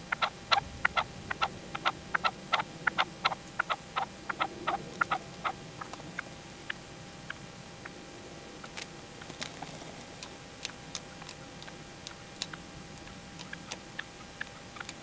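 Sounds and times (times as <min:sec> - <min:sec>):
partridge calling: 0:00.0 - 0:07.4, 0:11.1 - 0:15.0.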